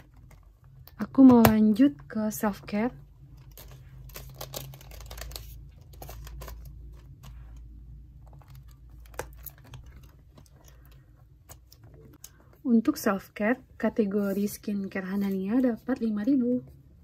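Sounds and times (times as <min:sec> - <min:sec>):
paper and plastic rustling: 0:03.3 - 0:12.2.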